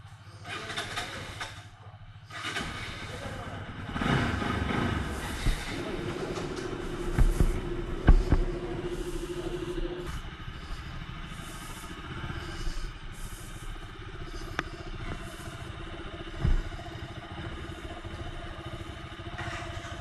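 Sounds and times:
motorcycle engine running: 0.0 - 20.0
short thump: 5.3 - 8.9, 16.4 - 16.8.

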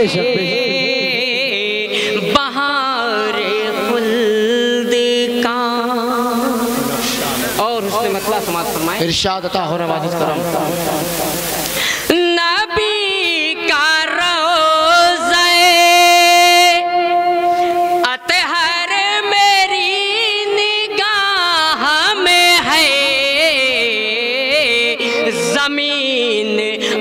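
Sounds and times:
man singing devotional chant: 0.0 - 27.0.

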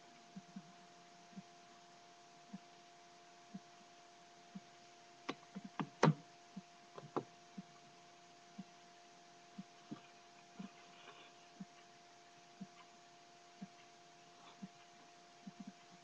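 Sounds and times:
electrical hum: 0.0 - 16.0
soft low ticks: 0.3 - 1.6, 2.5 - 2.7, 4.5 - 5.9, 11.5 - 16.0.

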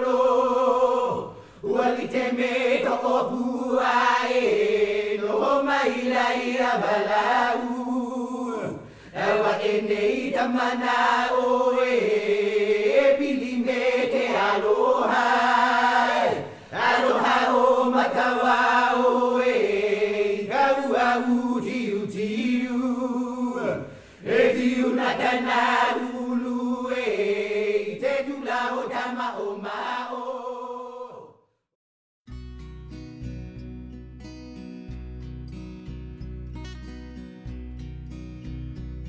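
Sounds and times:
music: 32.3 - 39.0.

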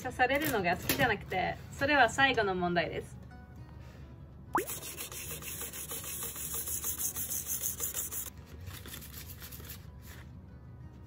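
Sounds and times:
sandpaper rubbing on steel: 4.7 - 8.3.

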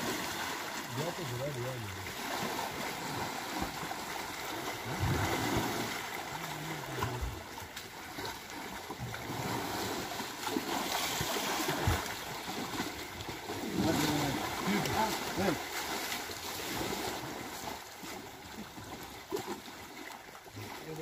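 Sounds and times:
water splashing and sloshing: 0.0 - 21.0.

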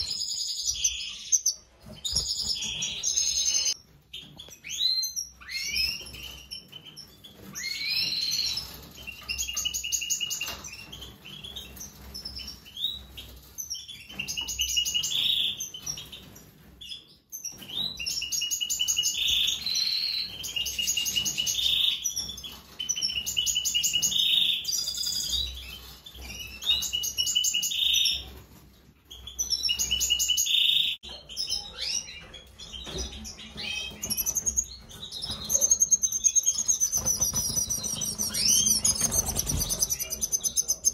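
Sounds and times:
bird twittering trills: 32.8 - 40.9.

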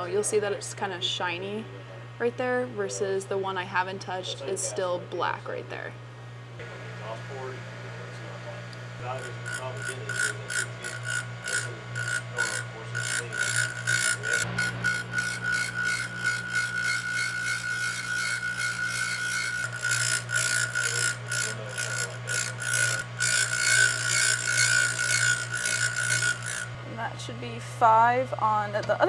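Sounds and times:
grinder motor humming: 4.2 - 29.0
metal rasping on grinding wheel: 9.0 - 26.8.

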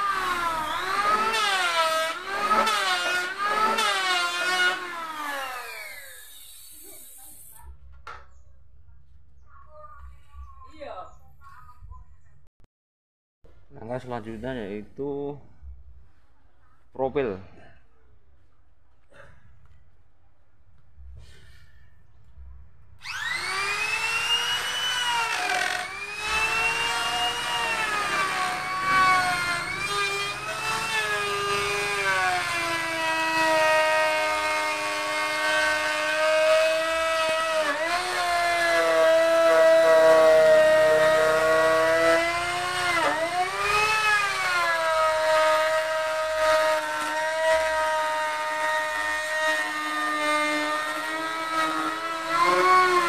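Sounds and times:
electric router whining: 0.0 - 7.1, 23.0 - 53.0.

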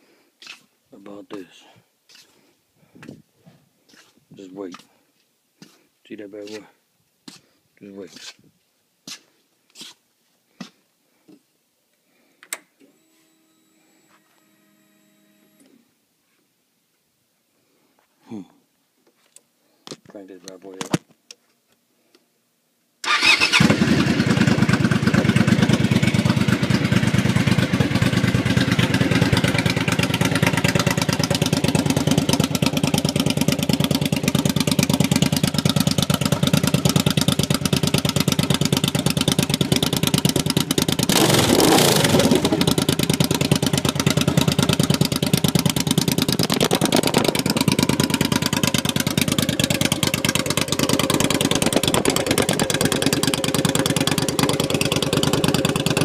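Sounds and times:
motorcycle engine starting and idling: 23.0 - 56.0
engine revving: 23.1 - 29.4, 40.5 - 45.4, 46.2 - 48.1.

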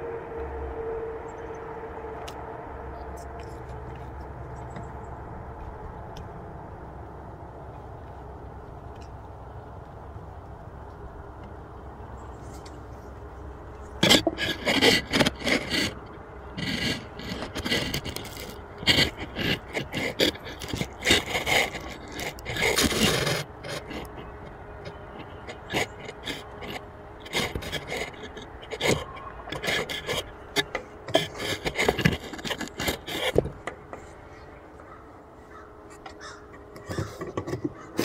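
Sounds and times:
scraping on wooden beehive: 12.2 - 38.0.

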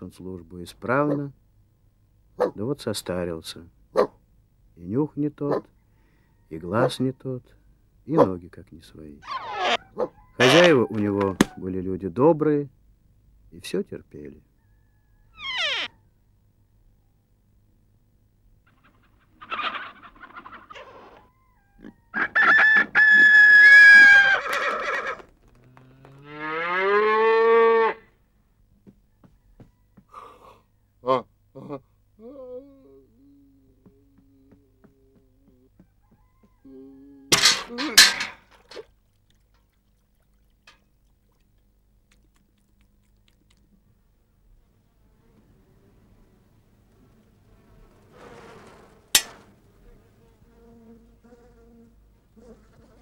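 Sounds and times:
rooster crowing: 5.8 - 6.8, 9.2 - 11.7, 14.5 - 16.2, 21.0 - 25.2, 29.1 - 30.2, 34.3 - 38.4
cow mooing: 10.4 - 10.9, 23.9 - 28.1
low hum: 36.6 - 51.2.

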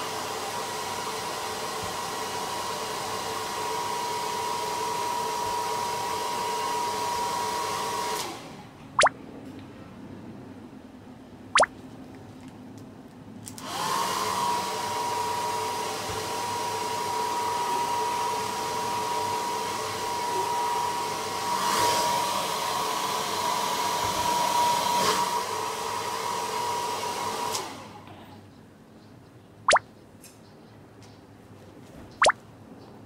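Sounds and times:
hair dryer running: 0.0 - 8.5, 13.6 - 28.0.

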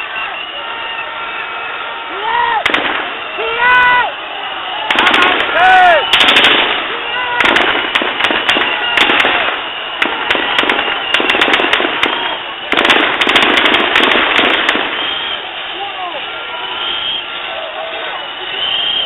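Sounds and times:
crowd shouting: 0.0 - 19.0
sharp cracks and bangs: 2.6 - 3.4, 4.8 - 15.4.

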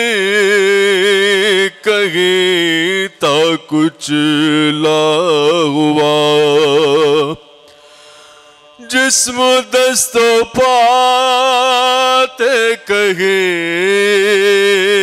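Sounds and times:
man chanting elegy: 8.6 - 15.0.

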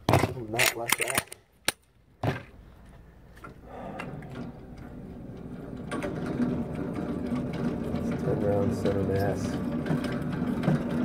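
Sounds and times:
motorized target carrier running: 3.7 - 11.0.

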